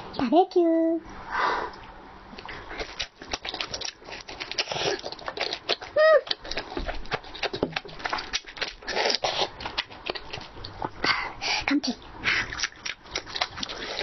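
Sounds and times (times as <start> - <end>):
chewing and wet mouth clicks: 1.8 - 11.0, 12.5 - 14.0.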